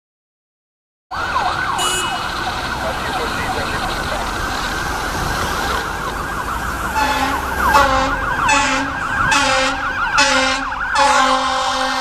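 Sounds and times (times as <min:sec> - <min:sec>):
fire engine siren yelping: 0:01.1 - 0:12.0
short horn blasts: 0:01.8 - 0:02.3, 0:07.0 - 0:12.0.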